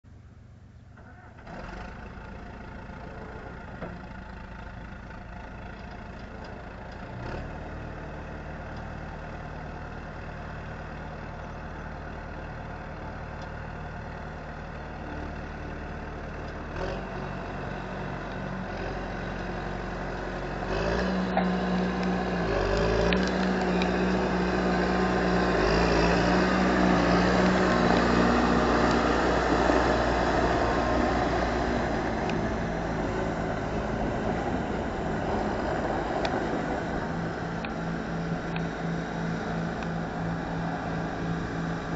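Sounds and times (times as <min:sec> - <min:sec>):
diesel engine running: 0:00.1 - 0:41.9.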